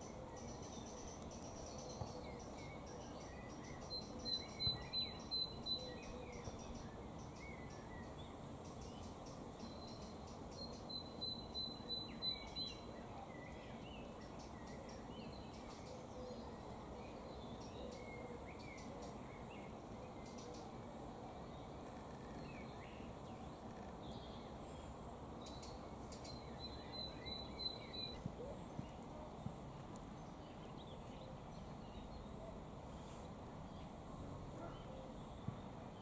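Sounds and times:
steady background noise: 0.0s - 36.0s
soft bird chirps: 21.4s - 34.0s.

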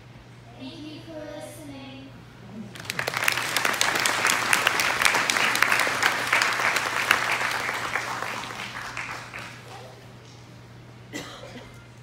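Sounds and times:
audience applause: 2.7s - 10.2s.

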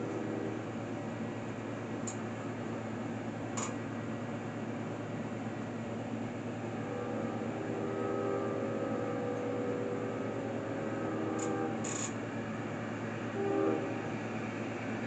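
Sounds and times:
locomotive air horn blasts: 0.0s - 0.8s, 6.6s - 12.2s, 13.3s - 14.2s.

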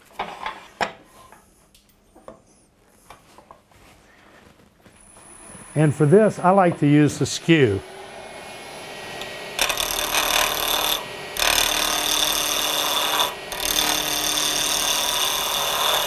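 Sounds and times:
lathe running: 5.2s - 16.0s
chisel scraping wood on lathe: 9.1s - 16.0s.

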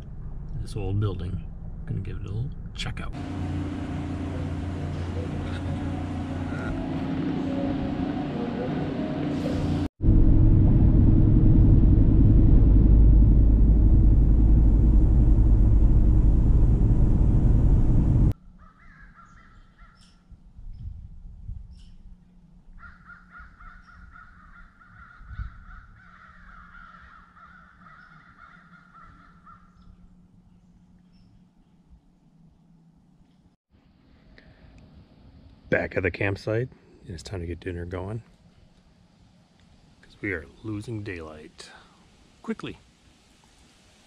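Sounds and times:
car cabin road and engine rumble: 0.0s - 18.4s
distant geese calling: 22.7s - 30.2s.

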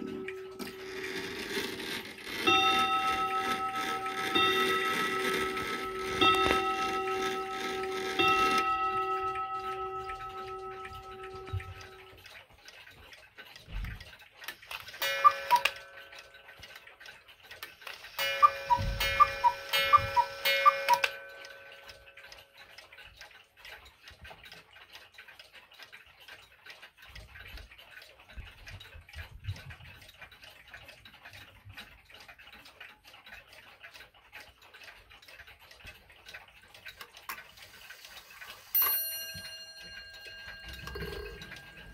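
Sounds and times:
cuckoo clock notes: 0.0s - 12.3s, 14.7s - 16.9s, 17.7s - 22.8s, 37.6s - 41.9s
mantel clock striking: 0.0s - 24.3s, 34.7s - 41.9s
clocks ticking: 0.0s - 41.9s.

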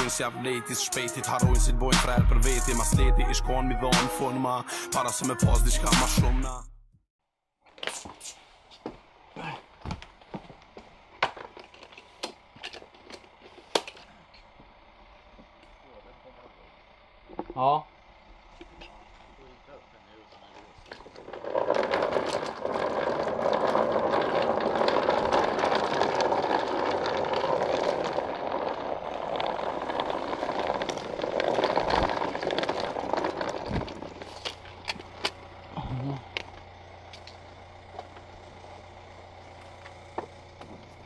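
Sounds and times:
suitcase wheels rumbling on ground: 8.9s - 15.6s, 20.3s - 41.0s
car engine idling: 11.7s - 21.3s, 24.2s - 41.0s.

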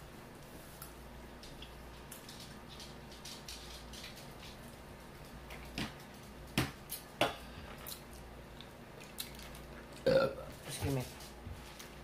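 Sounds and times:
chewing and smacking: 7.8s - 10.0s.

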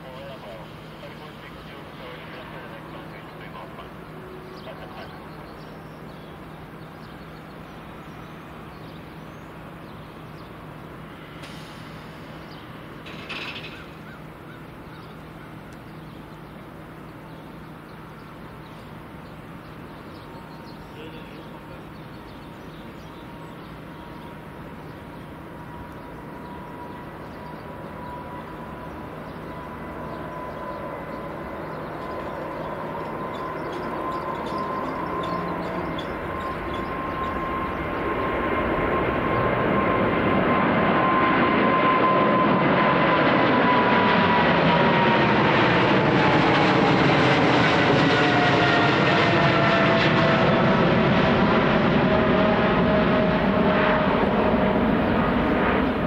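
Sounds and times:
constant low hum: 0.0s - 56.0s
jet engines whining: 0.0s - 56.0s
bird call: 2.8s - 10.6s, 12.3s - 16.6s, 26.0s - 38.2s.

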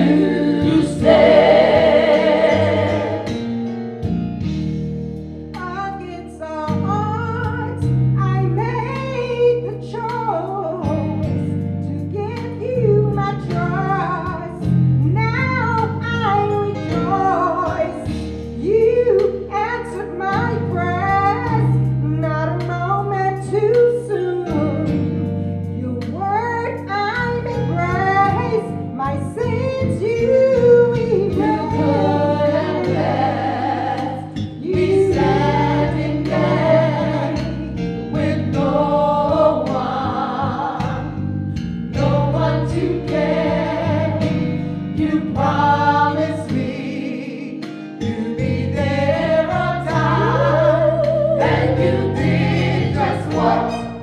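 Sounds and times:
woman singing gospel lead: 0.0s - 3.4s, 5.6s - 24.9s, 25.8s - 41.2s, 42.0s - 54.0s
group singing: 0.0s - 3.6s, 31.4s - 41.2s, 42.0s - 54.0s
sustained instrumental accompaniment: 0.0s - 5.6s, 30.6s - 47.0s, 47.7s - 54.0s.

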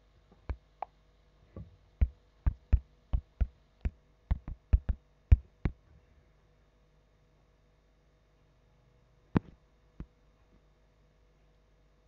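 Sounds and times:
fingertip taps on touchscreen: 2.0s - 5.8s.

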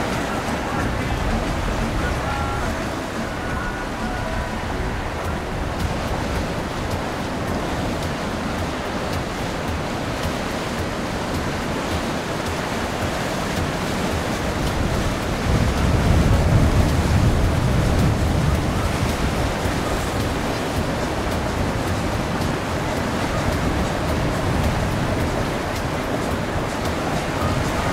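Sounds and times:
water rushing past: 0.0s - 27.9s
wind buffeting microphone: 0.0s - 27.9s.

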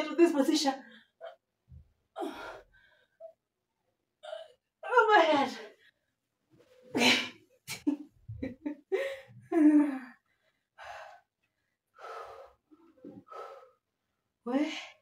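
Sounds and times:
woman gasping and groaning: 2.2s - 2.8s
heavy breathing: 12.0s - 13.9s.

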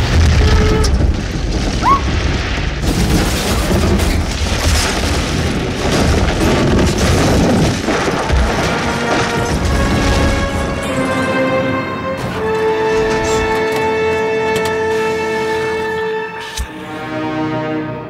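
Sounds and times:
booming crashes: 0.0s - 13.6s
low rumble of falling debris: 0.0s - 15.9s.

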